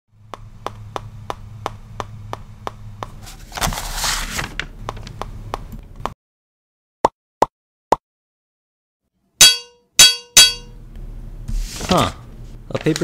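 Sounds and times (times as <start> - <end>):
low steady hum: 0.1 - 6.1, 9.4 - 13.0.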